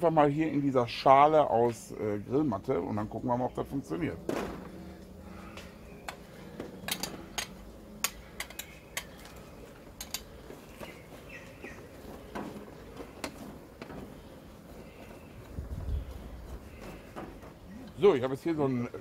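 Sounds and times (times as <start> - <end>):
bird chirping: 5.4 - 6.6, 10.4 - 12.3.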